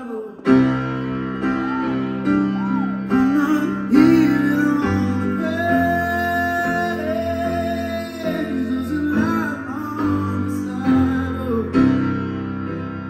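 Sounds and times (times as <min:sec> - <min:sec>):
piano playing chords: 0:00.0 - 0:13.0
person singing wordless notes: 0:01.9 - 0:12.3.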